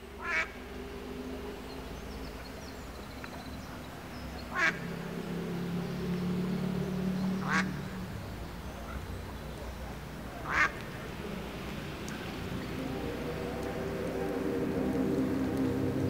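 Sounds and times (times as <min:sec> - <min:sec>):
steady low hum: 0:00.0 - 0:16.0
duck quacking: 0:04.5 - 0:04.8, 0:07.4 - 0:07.7, 0:10.4 - 0:10.8.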